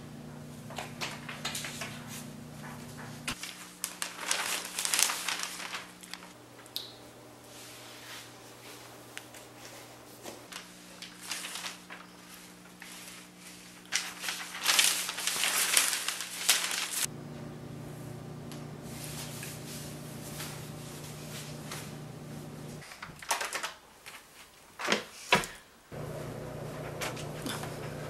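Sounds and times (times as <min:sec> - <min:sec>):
steady low hum: 0:00.0 - 0:03.4, 0:17.1 - 0:22.8, 0:25.9 - 0:28.0
newspaper pages rustling: 0:00.7 - 0:06.4, 0:09.3 - 0:17.1, 0:18.6 - 0:25.0.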